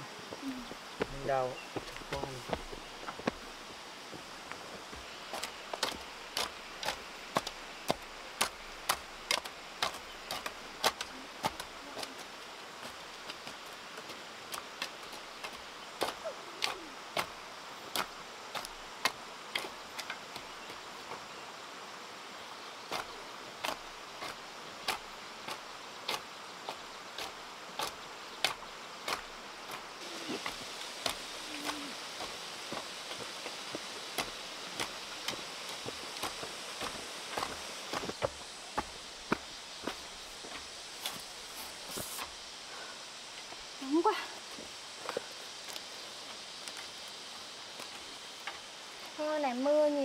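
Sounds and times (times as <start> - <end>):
hoes chopping into soil: 0.6 - 3.5, 4.5 - 21.3, 22.9 - 42.4.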